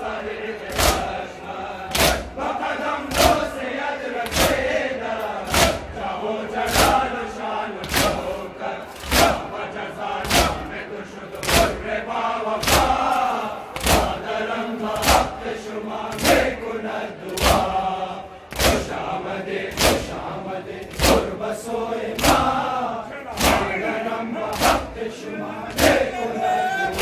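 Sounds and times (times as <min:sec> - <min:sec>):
many voices chanting: 0:00.0 - 0:27.0
chest beating slaps: 0:01.9 - 0:02.4, 0:07.8 - 0:08.2, 0:12.6 - 0:13.0, 0:13.8 - 0:14.2, 0:18.5 - 0:18.9, 0:19.7 - 0:20.2, 0:23.4 - 0:23.7.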